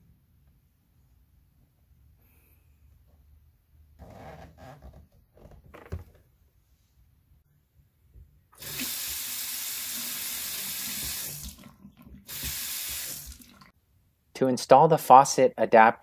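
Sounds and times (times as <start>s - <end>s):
water running into sink: 8.6s - 13.7s.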